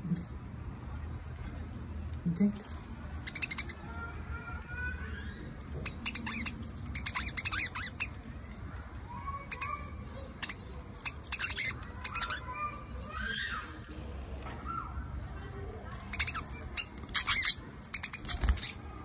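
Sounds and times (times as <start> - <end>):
budgerigars chattering: 16.1 - 18.8.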